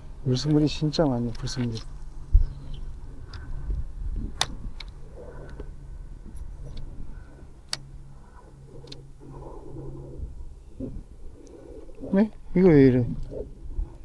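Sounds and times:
low steady hum: 0.0s - 14.0s
wind rumble on microphone: 0.0s - 14.0s
fishing reel ticks: 6.4s - 9.6s.

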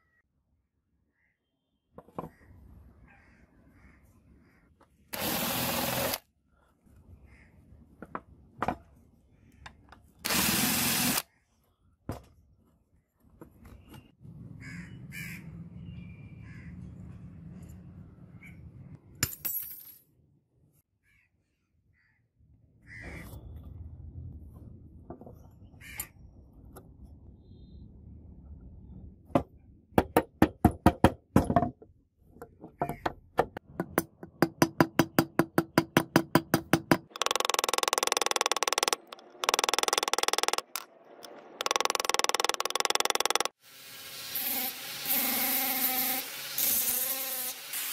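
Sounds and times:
crows cawing: 2.3s - 4.7s, 14.6s - 15.5s, 22.8s - 23.3s, 25.8s - 26.1s
rotary tool grinding metal: 41.6s - 47.9s.

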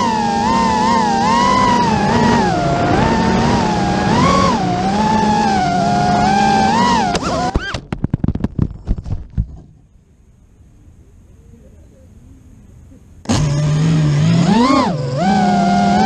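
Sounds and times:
drone motors whining: 0.0s - 7.8s, 13.2s - 16.0s
stuttering motor blips: 0.0s - 7.8s, 13.2s - 16.0s.

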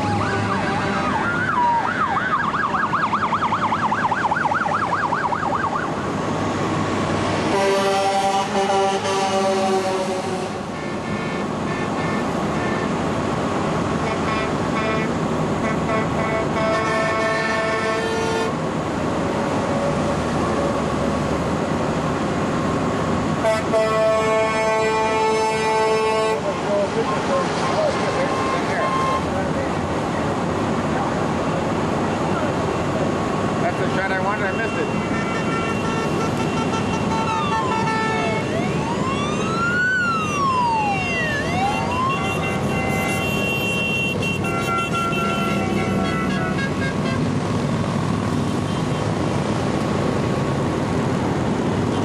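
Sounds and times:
siren wailing: 0.0s - 6.1s, 37.0s - 43.2s
traffic rumble on highway: 0.0s - 52.0s
vehicle horn tooting: 7.5s - 12.9s, 14.0s - 18.6s, 23.4s - 26.4s, 34.4s - 38.4s, 41.8s - 47.2s.

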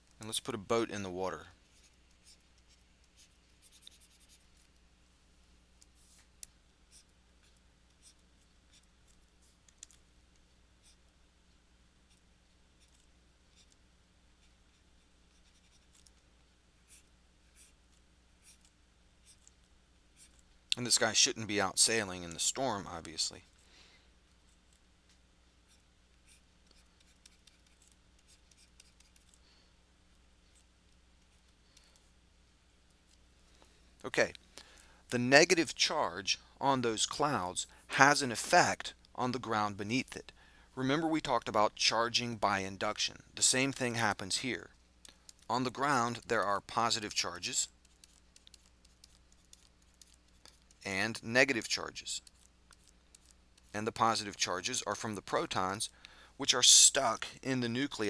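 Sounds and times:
low steady hum: 0.0s - 58.0s
stylus scratching on tablet: 1.7s - 4.8s, 5.8s - 9.9s, 10.8s - 11.1s, 12.0s - 13.8s, 14.4s - 16.2s, 16.8s - 23.1s, 25.6s - 29.4s, 45.3s - 55.8s
stylus scratching drawing tablet: 1.8s - 4.5s, 14.4s - 16.0s, 25.7s - 29.3s, 45.5s - 50.9s.

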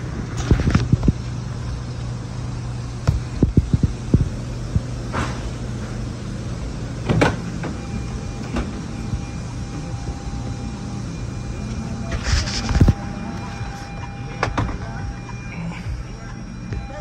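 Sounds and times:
steady low hum: 0.0s - 17.0s
car door clunk: 7.0s - 7.8s.

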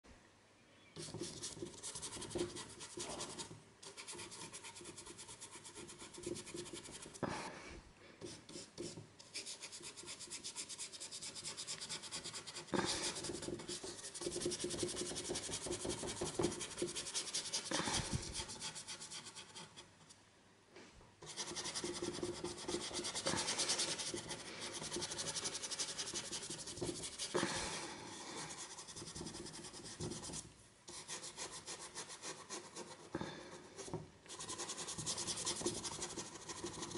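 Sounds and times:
paintbrush scrubbing on canvas: 1.0s - 7.2s, 21.2s - 27.5s.

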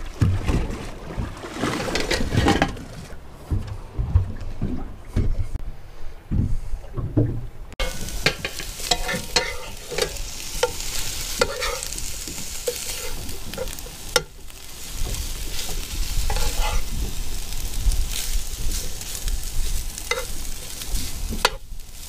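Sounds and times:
plastic spoon scraping a pan: 7.8s - 13.8s, 15.6s - 16.9s
food sizzling in butter: 7.8s - 22.0s.

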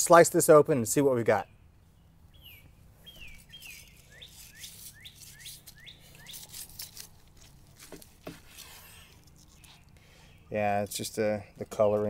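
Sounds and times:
songbird rising chirps: 1.4s - 6.8s.

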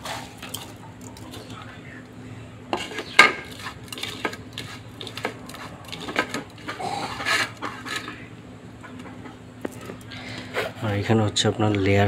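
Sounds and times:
hand scraping grains in bowls: 2.7s - 8.3s.

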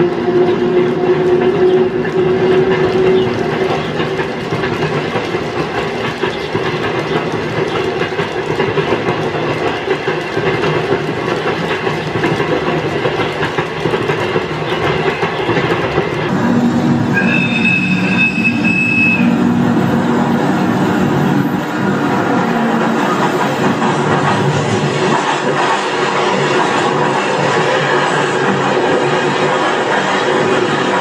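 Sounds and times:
model train wheels clattering: 2.5s - 16.3s
locomotive motor hum: 16.3s - 24.9s.

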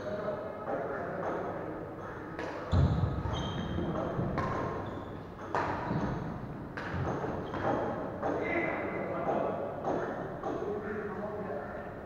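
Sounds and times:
rackets hitting shuttlecock: 2.4s - 8.4s
shoes squeaking on wooden floor: 2.7s - 6.3s.

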